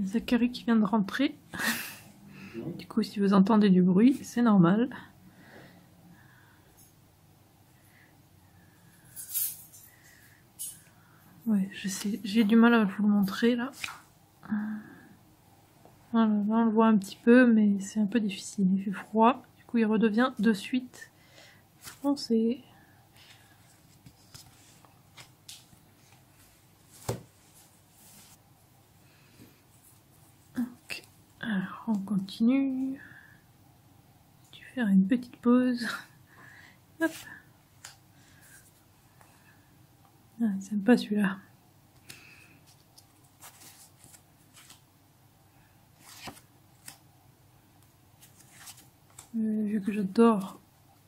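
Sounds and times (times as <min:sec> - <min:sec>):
paper stickers rustling: 0:42.7 - 0:44.8, 0:48.2 - 0:49.4.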